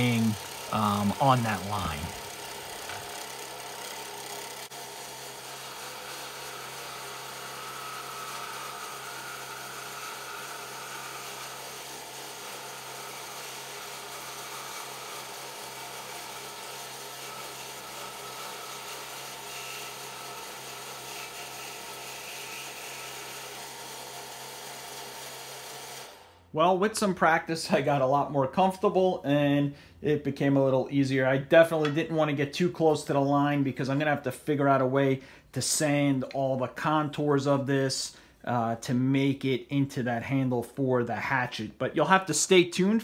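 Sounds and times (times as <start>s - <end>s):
scroll saw cutting wood: 0.0s - 26.5s.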